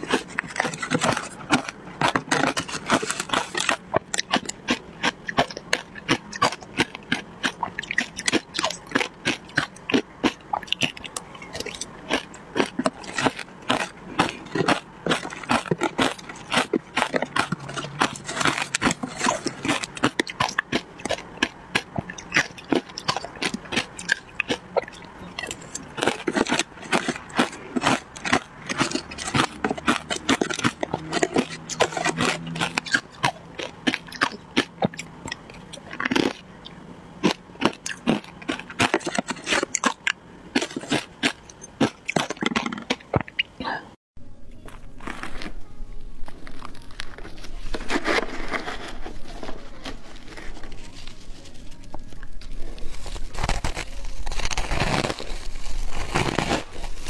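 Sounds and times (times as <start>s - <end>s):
metal spoon scraping ice: 0.0s - 7.1s, 12.6s - 35.0s
crunching shaved ice: 0.0s - 36.6s, 37.2s - 43.4s, 44.7s - 45.6s, 46.2s - 57.0s.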